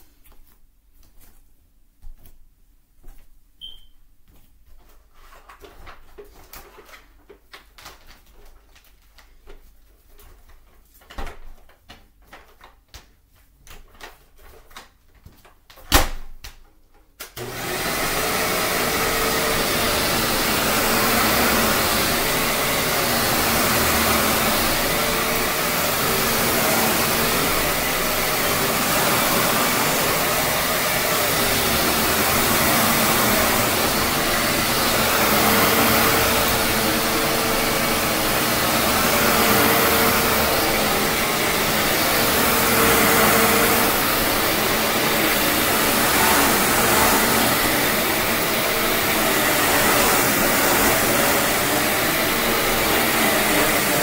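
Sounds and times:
vacuum cleaner running: 0:17.4 - 0:54.0.

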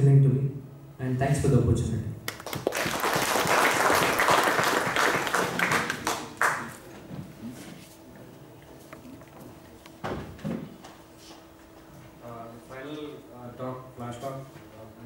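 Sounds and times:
audience applauding: 0:02.3 - 0:06.9.

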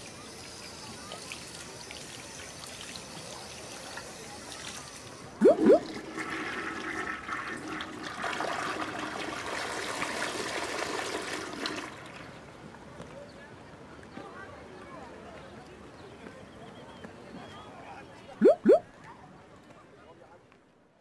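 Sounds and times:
faint water trickle: 0:00.0 - 0:08.2
water rushing like a flush: 0:01.3 - 0:12.3
rising water plops: 0:05.4 - 0:07.1, 0:18.4 - 0:18.8.

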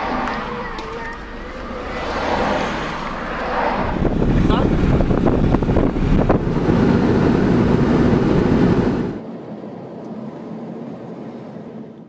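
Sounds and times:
car cabin hum: 0:00.0 - 0:09.2
road and wind noise: 0:00.0 - 0:12.0.

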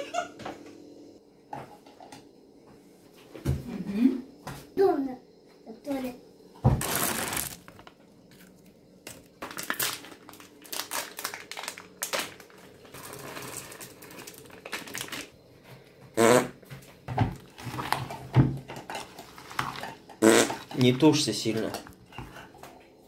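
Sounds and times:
foil packet crinkling: 0:06.8 - 0:15.4, 0:18.9 - 0:22.0.

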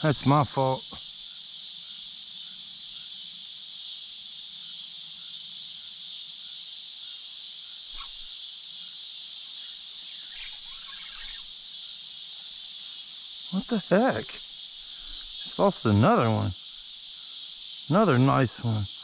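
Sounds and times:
insects chirring: 0:00.0 - 0:19.0
faint brief rustles: 0:07.9 - 0:08.3.

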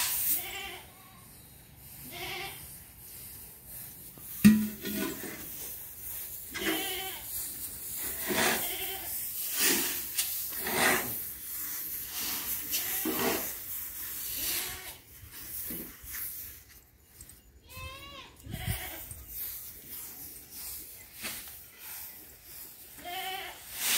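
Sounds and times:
sharp knock: 0:04.4 - 0:04.9.

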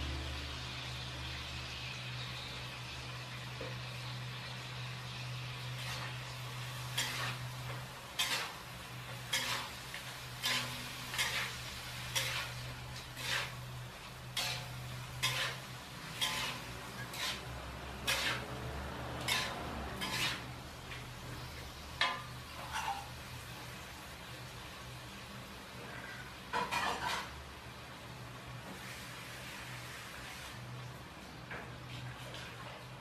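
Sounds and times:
metal utensil scraping a pan: 0:05.1 - 0:23.3, 0:25.8 - 0:27.4.

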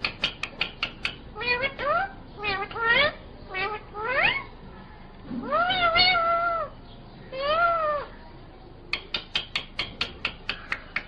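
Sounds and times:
parakeet sharp clicks: 0:00.0 - 0:01.3, 0:08.9 - 0:11.0
parakeet meow-like calls: 0:01.3 - 0:04.5, 0:05.4 - 0:08.2.

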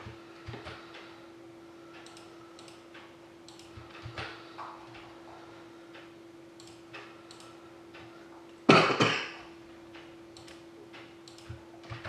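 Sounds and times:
faint ticking and clicking: 0:00.0 - 0:08.7, 0:09.5 - 0:12.0
steady low hum: 0:00.0 - 0:12.0
person coughing: 0:08.7 - 0:09.4.

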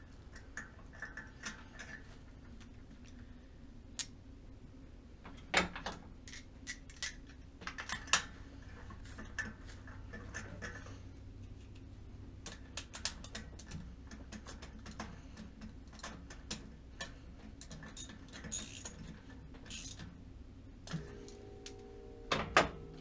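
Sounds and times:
ratchet wrench clicking: 0:18.0 - 0:19.0, 0:19.7 - 0:20.0.

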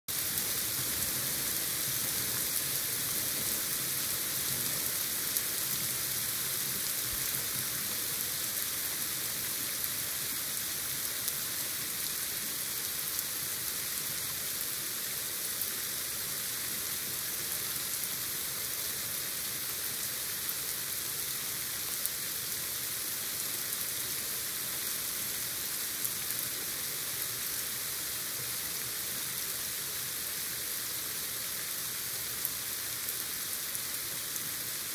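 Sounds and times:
heavy rain pouring: 0:00.1 - 0:23.0.

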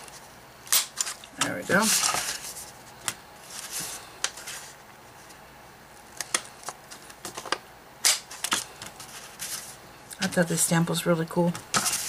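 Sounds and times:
paper rustling: 0:01.1 - 0:05.4, 0:08.3 - 0:09.8, 0:11.7 - 0:12.0.

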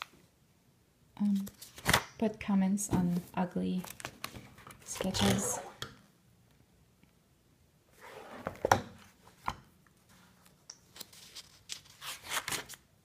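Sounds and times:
sketchbook page turning: 0:10.4 - 0:12.8.

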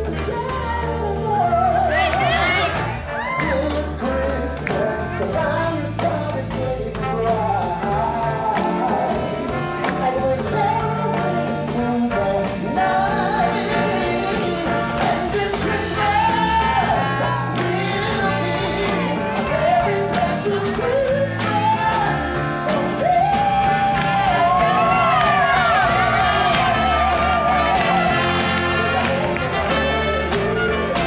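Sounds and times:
live band playing: 0:00.0 - 0:31.0
man singing into a microphone: 0:03.4 - 0:09.4.

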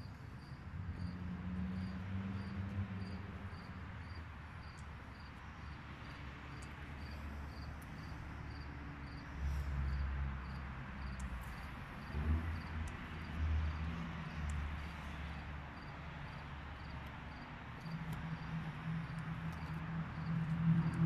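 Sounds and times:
cricket chirping: 0:01.8 - 0:13.3.

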